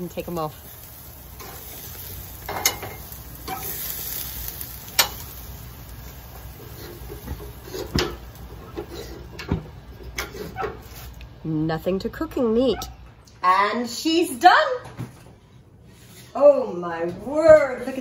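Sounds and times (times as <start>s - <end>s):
meat sizzling on a grill: 0.0s - 11.1s
metal tongs clacking: 2.4s - 3.8s, 4.9s - 5.3s.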